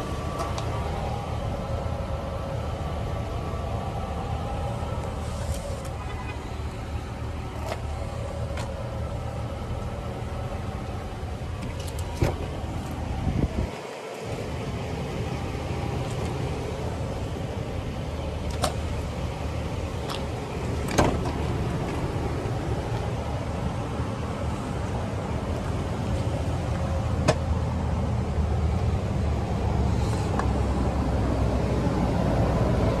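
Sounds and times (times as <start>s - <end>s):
truck engine idling: 0.0s - 33.0s
car door clicks and knocks: 27.2s - 27.5s.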